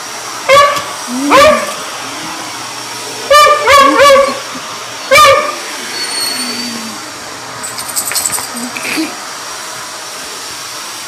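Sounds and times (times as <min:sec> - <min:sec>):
vacuum cleaner running: 0:00.0 - 0:11.0
dog barking: 0:00.5 - 0:01.8, 0:03.3 - 0:05.6.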